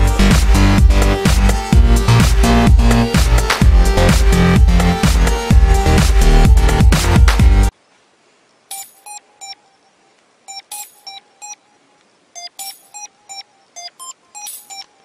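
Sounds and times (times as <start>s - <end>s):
electronic dance music: 0.0s - 7.7s
short high electronic beeps: 8.7s - 9.6s, 10.5s - 11.6s, 12.4s - 15.0s.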